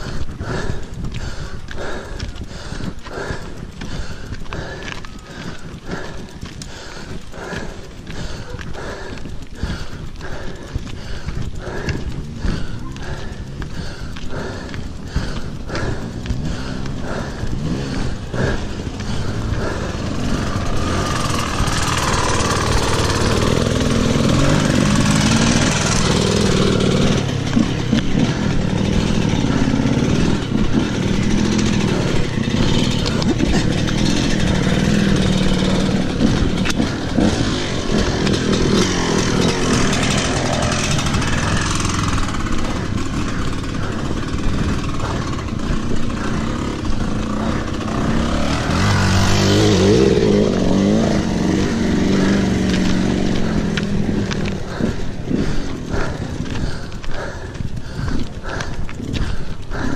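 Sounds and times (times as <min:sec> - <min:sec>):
wind noise on microphone: 0:00.0 - 0:22.4
bike rattling: 0:00.0 - 0:59.9
bike tyres rumbling on dirt: 0:00.0 - 0:59.9.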